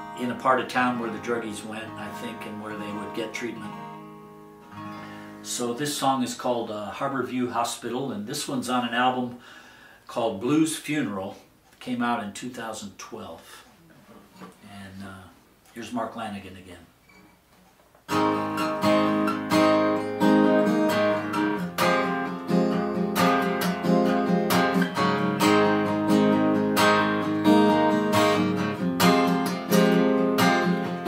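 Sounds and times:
acoustic guitar strumming chords: 0.0 - 6.6, 18.1 - 31.0.

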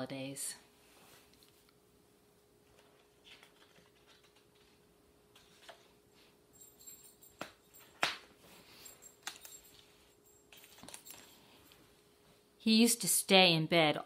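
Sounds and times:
paper rustling: 2.7 - 6.0.

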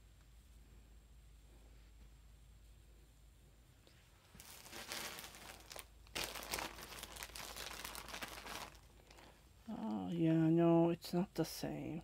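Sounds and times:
crinkling and rustling: 3.8 - 10.2.

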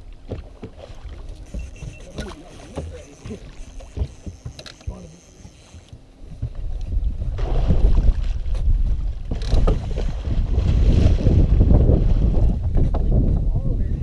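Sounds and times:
wind buffeting microphone: 6.2 - 14.0.

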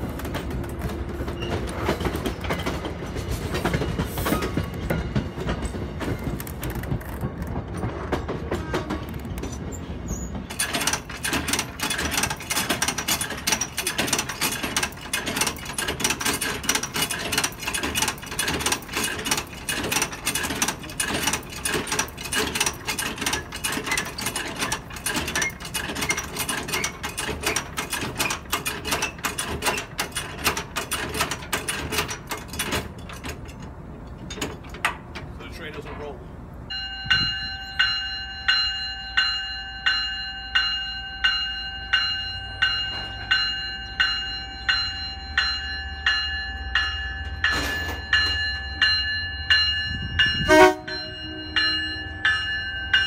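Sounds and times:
rail coach rumbling: 0.0 - 53.0
mechanical clicking and rattling: 10.5 - 35.2.

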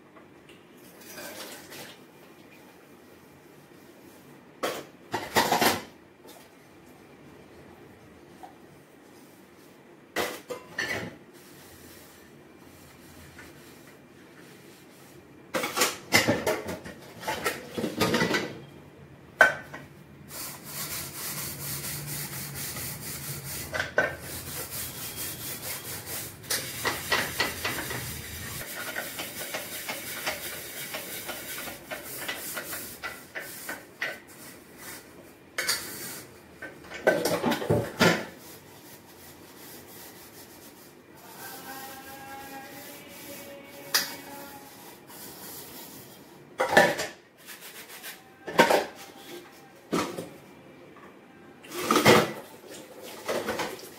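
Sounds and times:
scrubbing steel utensils: 20.3 - 35.0.

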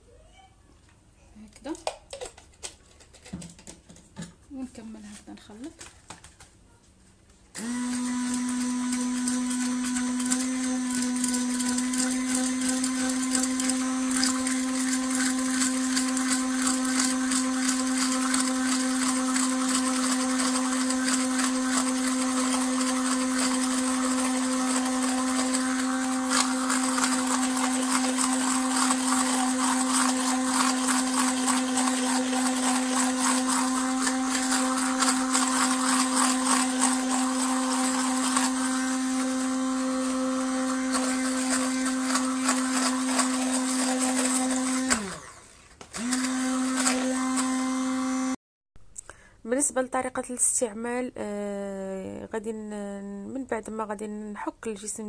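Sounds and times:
stick blender running: 7.6 - 48.4.

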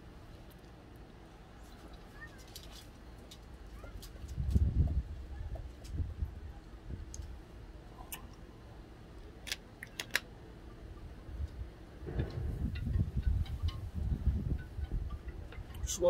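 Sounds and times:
sharp clicks: 9.4 - 10.3
low rumble: 11.4 - 15.2.

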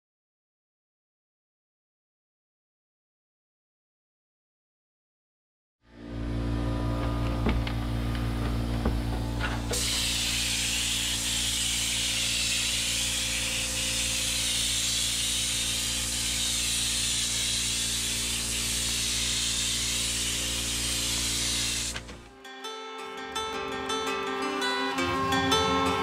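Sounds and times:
steady low hum: 5.9 - 22.4
paint spray gun hissing: 9.5 - 22.3.

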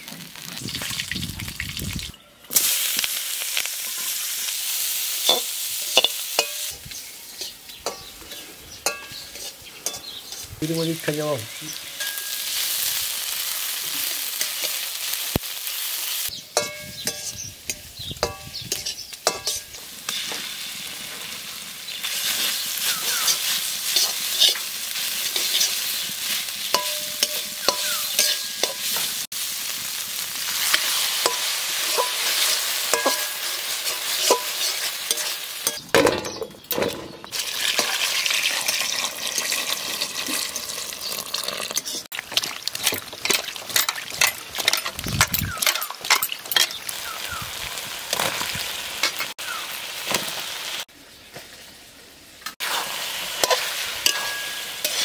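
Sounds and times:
onions sizzling in hot oil: 0.0 - 35.9, 37.3 - 55.0
metal spatula scraping pan: 16.6 - 19.8, 22.0 - 24.7, 26.7 - 29.1, 30.6 - 35.8, 52.6 - 55.0
water pouring into metal bowl: 37.4 - 42.8.

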